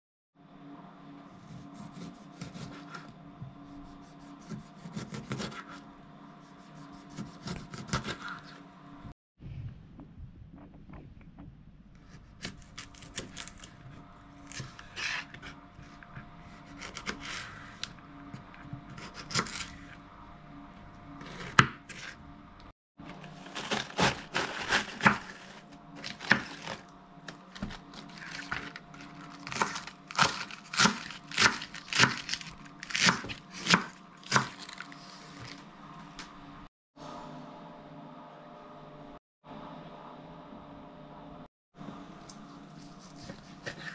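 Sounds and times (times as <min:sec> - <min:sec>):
knife shredding lettuce: 0:23.3 - 0:26.8, 0:27.6 - 0:35.6, 0:42.4 - 0:43.9
knife slicing pepper on board: 0:42.8 - 0:43.9.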